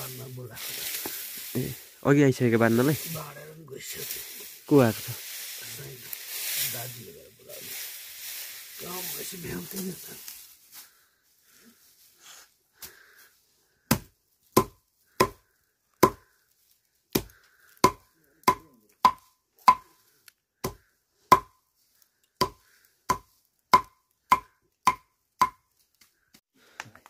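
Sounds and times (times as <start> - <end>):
blade chopping dried grass: 13.9 - 15.4, 16.0 - 16.3, 17.1 - 19.9, 22.4 - 25.6.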